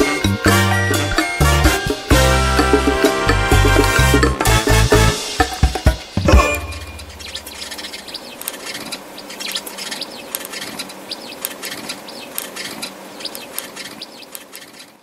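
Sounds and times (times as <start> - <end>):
steady background hiss: 5.2 - 15.0
sparrows chirping: 6.4 - 15.0.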